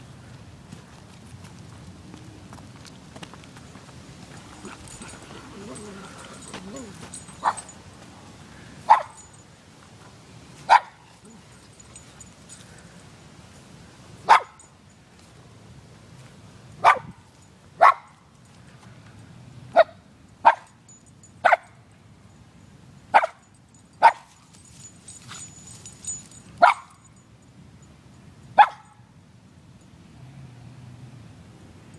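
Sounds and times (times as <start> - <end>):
dog barking: 8.8 - 9.2, 10.7 - 11.4, 14.3 - 14.6, 16.8 - 17.1, 17.8 - 18.2, 23.2 - 23.4, 26.6 - 26.9, 28.6 - 28.9.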